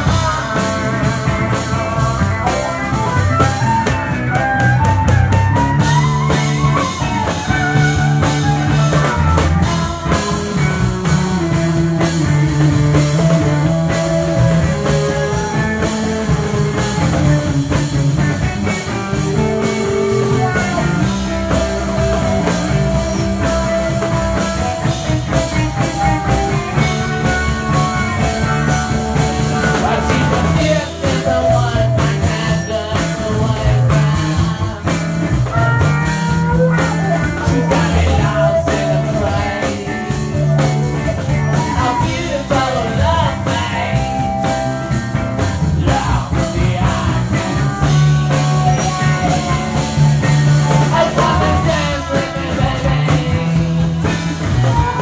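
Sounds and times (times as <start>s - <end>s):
person singing: 0.0s - 4.6s, 5.3s - 44.7s, 45.6s - 55.0s
live rock and roll band: 0.0s - 55.0s.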